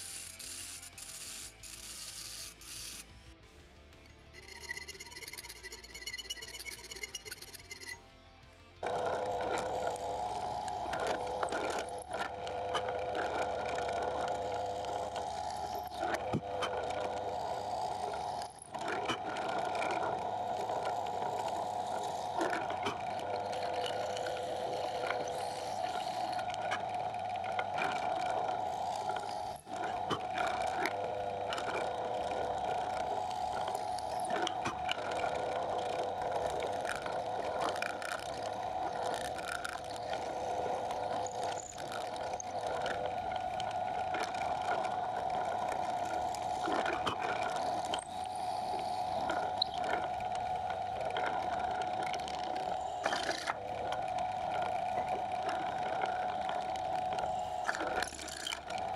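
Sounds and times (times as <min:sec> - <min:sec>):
drill press boring into wood: 0:00.0 - 0:03.1, 0:08.8 - 0:58.9.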